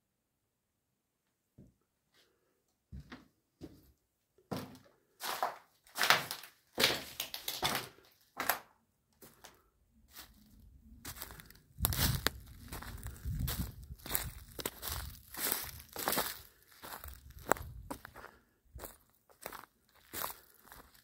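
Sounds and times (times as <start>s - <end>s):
footsteps crunching over debris: 4.5s - 8.6s, 9.2s - 21.0s
footsteps crackling on twigs: 5.2s - 21.0s.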